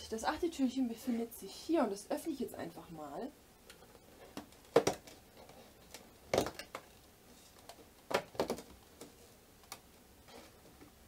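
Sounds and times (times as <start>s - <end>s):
cardboard knocks and crackles: 4.3s - 5.2s, 8.1s - 9.2s.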